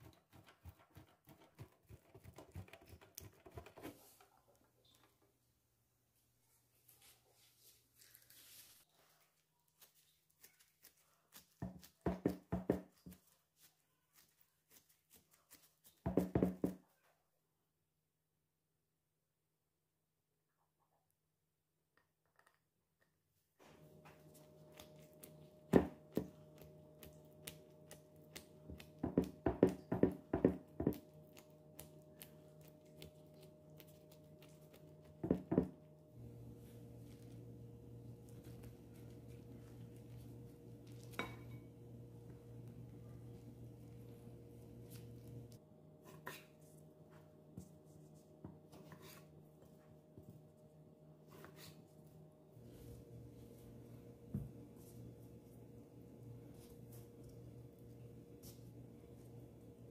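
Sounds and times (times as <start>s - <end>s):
plastic glove crinkles: 6.8s - 12.0s
faint steady hum: 23.6s - 59.9s
fingertips knocking on dough: 28.7s - 31.1s, 35.2s - 35.8s.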